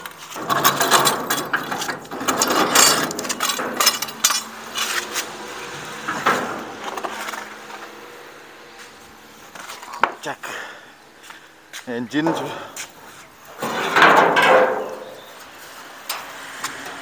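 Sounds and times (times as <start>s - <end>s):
concrete mixer clanking over paving: 0.0s - 8.2s, 13.6s - 15.3s.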